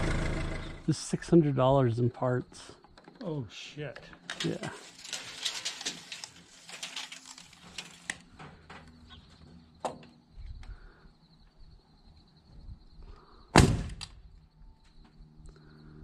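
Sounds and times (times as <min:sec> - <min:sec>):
tools clicking on wooden trusses: 0:04.0 - 0:09.0
loud sharp thump: 0:13.6 - 0:14.1.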